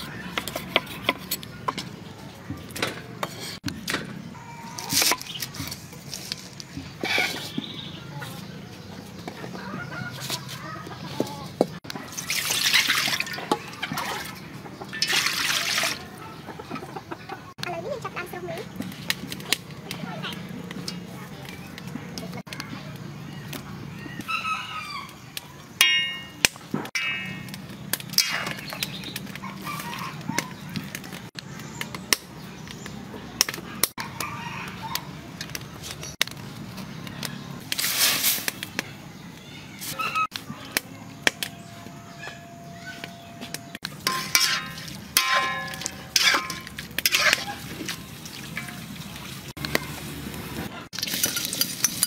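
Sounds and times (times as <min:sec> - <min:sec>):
metal utensil clanging on pot: 0:25.8 - 0:29.1, 0:43.6 - 0:49.1, 0:50.9 - 0:52.0.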